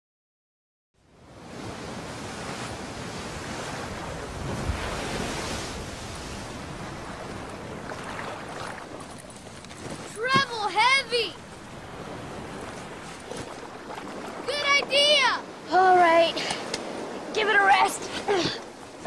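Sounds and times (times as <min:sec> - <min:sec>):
ocean waves breaking on beach: 0:01.0 - 0:19.0.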